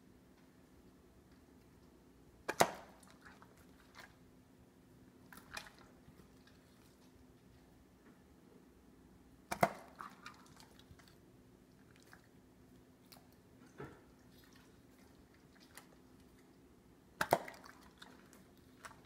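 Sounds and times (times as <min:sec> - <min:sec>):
dog crunching asparagus: 0:09.5 - 0:12.4, 0:13.0 - 0:13.4, 0:17.2 - 0:19.0.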